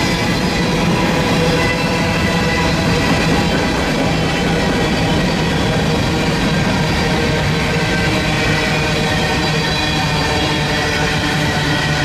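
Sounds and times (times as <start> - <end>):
train wheels rumbling on rail: 0.0 - 12.0.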